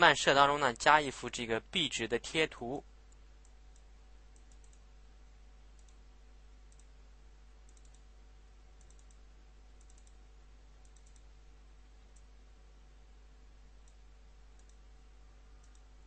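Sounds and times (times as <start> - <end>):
low electrical hum: 0.0 - 16.0
computer mouse clicks: 3.1 - 4.8, 5.8 - 6.0, 6.7 - 6.9, 7.6 - 8.1, 8.8 - 9.2, 9.8 - 10.2, 10.8 - 11.3, 13.8 - 14.8, 15.6 - 15.9.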